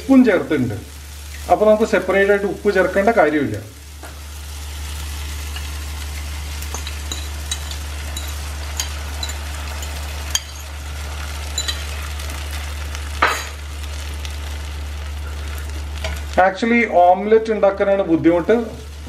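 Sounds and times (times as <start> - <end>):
egg sizzling in frying pan: 0.0 - 17.2, 18.1 - 19.0
steady low hum: 0.0 - 19.0
small crackles: 3.5 - 16.4.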